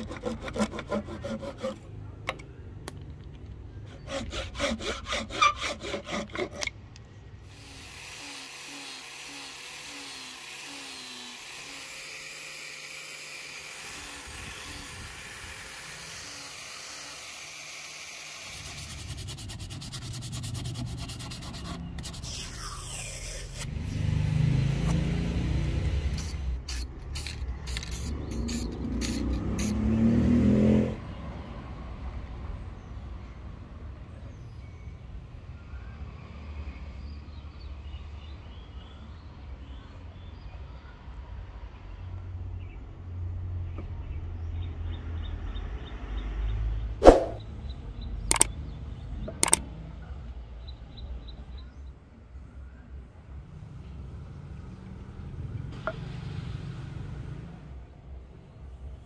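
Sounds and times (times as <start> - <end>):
file rasping on wood: 0.0 - 1.9, 3.9 - 6.7, 18.4 - 23.7
orbital sander running: 7.5 - 20.4.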